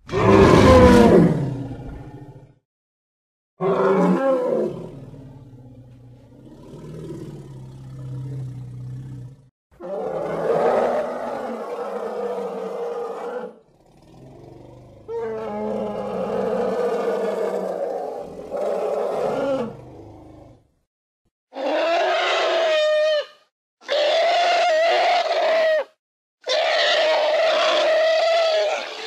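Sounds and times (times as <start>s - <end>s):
rough elephant-like roar: 0.0s - 2.6s, 3.6s - 20.7s.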